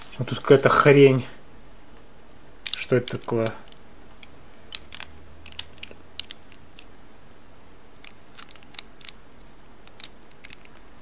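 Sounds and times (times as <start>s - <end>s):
plastic toy pieces clicking: 2.3s - 6.9s, 8.0s - 10.9s.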